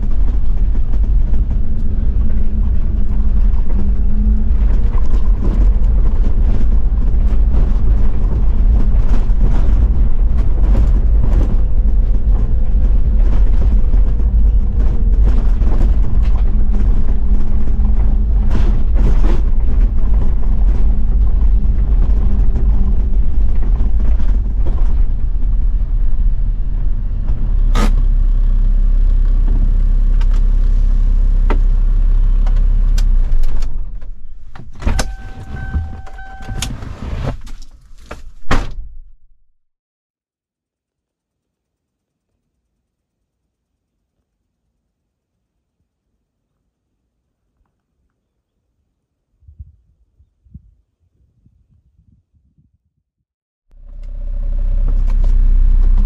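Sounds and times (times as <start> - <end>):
car body knocking and rattling: 0.0 - 28.4
diesel engine running: 0.0 - 36.8, 53.7 - 56.0.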